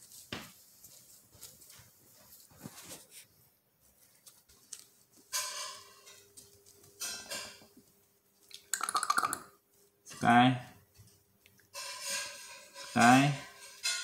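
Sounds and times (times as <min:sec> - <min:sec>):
puppy rustling on pads: 0:00.0 - 0:08.5.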